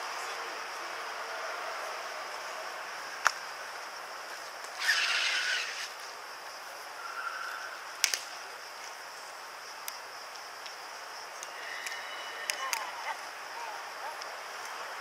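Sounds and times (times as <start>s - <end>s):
steady high hiss: 0.0s - 15.0s
brief rushing hiss: 4.7s - 6.0s.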